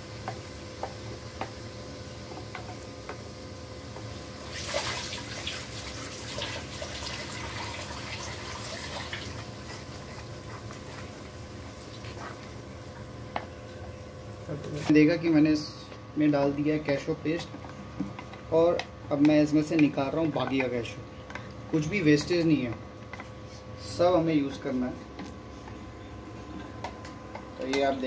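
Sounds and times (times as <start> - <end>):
paste sizzling in hot oil: 0.0 - 12.9.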